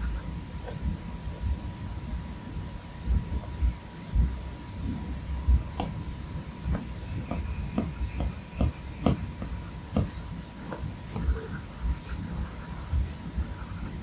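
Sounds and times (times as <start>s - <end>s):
stylus tapping on glass screen: 6.7s - 10.2s.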